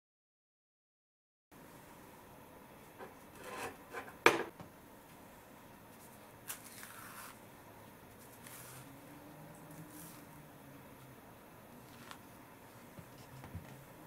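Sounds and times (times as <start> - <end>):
banana peel tearing: 6.4 - 7.4
bread rustling: 11.8 - 13.4.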